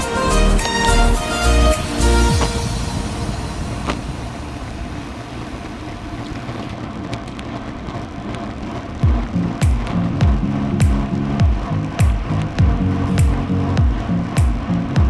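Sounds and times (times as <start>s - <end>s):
music: 0.0s - 4.5s, 9.0s - 15.0s
bike tyre noise on asphalt: 0.0s - 15.0s
wind rushing over microphone: 1.2s - 15.0s.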